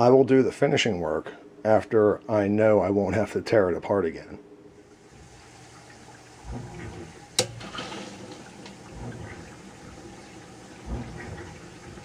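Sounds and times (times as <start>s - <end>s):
water rushing through pipes: 4.9s - 12.0s
low thumps in pipes: 5.1s - 12.0s.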